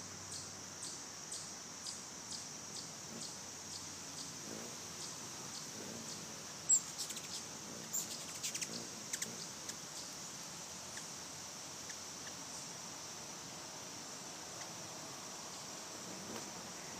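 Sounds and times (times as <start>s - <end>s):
high insect drone: 0.0s - 16.9s
hummingbird chip calls: 0.3s - 10.2s, 10.9s - 11.2s.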